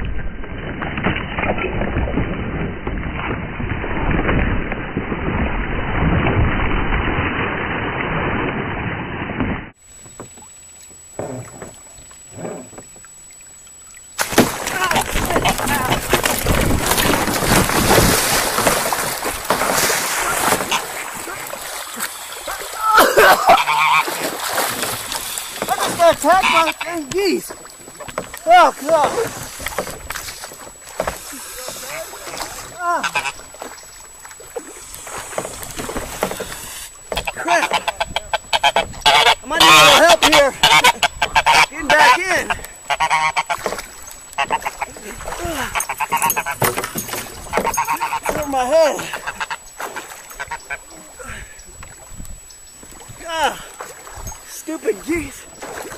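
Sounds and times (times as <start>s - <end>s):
goose splashing in water: 14.2s - 50.9s
harsh goose calls: 14.7s - 16.3s, 20.2s - 27.4s, 31.0s - 33.5s, 36.1s - 46.8s, 47.4s - 49.7s.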